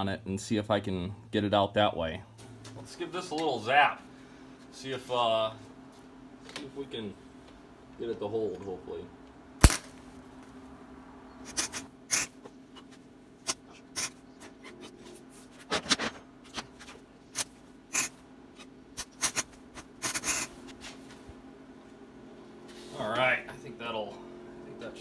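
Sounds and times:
steady low hum: 0.0 - 25.0
welder crackling zaps: 9.6 - 10.0, 17.4 - 18.2, 19.0 - 20.5.

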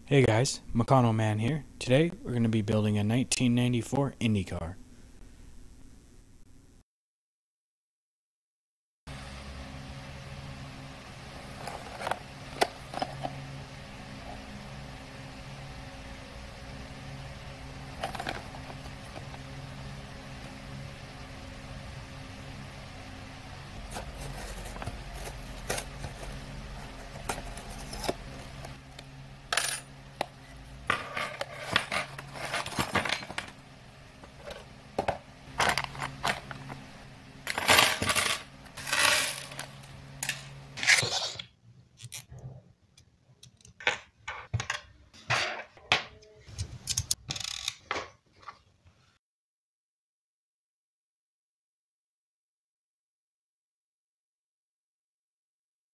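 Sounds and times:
steady low hum: 9.1 - 41.0.

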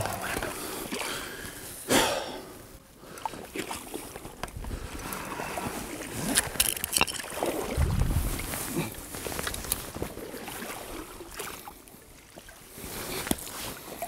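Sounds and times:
water splashing around waders: 3.1 - 14.0
low rumble: 7.7 - 9.0.

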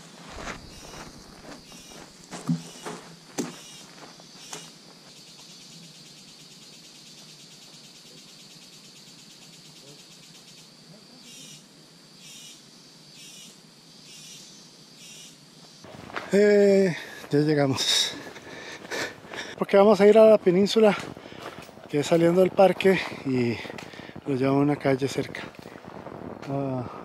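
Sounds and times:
footsteps on dry leaves: 0.0 - 4.2, 20.7 - 24.4
insects trilling: 0.0 - 27.0
pulsed insect call: 0.0 - 27.0.

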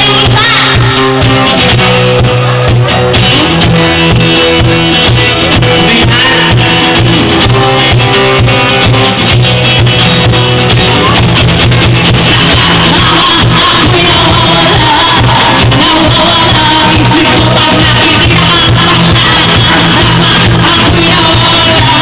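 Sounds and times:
acoustic guitar strumming: 0.0 - 22.0.

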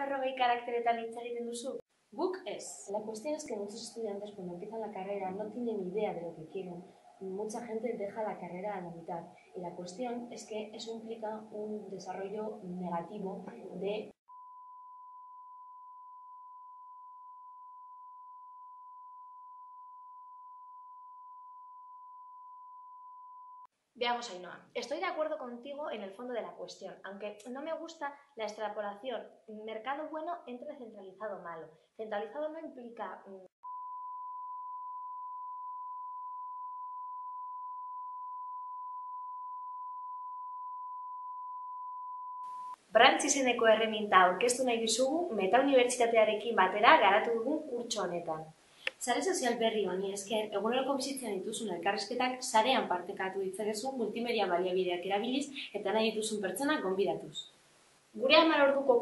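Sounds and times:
censor bleep tone: 14.3 - 23.7, 33.6 - 42.8
steady electronic beep: 33.6 - 42.8.

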